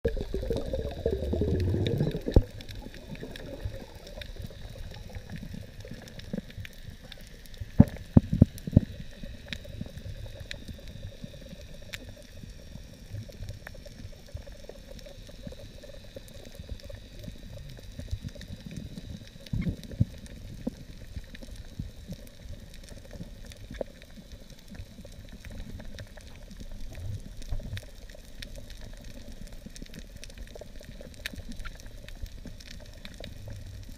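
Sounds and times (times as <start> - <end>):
muffled underwater rumble: 0.0 - 33.9
faint clicks and crackles: 0.1 - 33.9.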